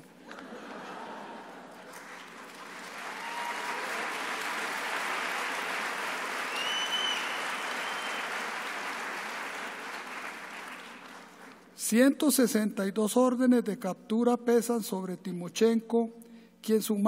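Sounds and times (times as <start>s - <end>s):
audience applauding: 0.9s - 11.6s.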